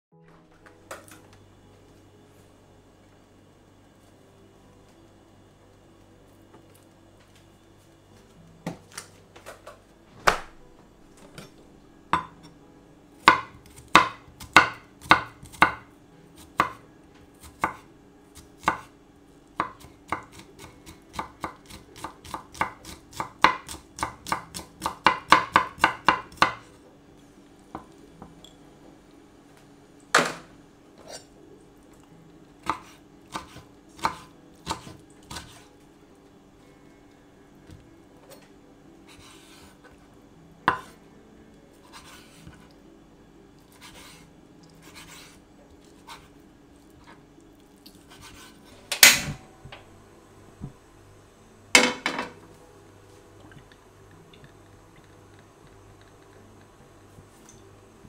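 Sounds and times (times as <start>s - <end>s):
knife chopping on wooden board: 13.2s - 15.8s, 16.5s - 16.8s, 18.4s - 18.9s, 19.6s - 26.6s, 32.6s - 35.6s, 40.7s - 41.0s.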